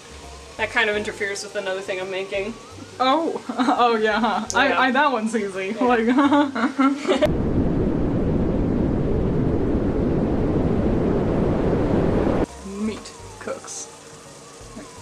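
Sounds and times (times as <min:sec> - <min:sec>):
loud low rumbling: 0:07.3 - 0:12.5.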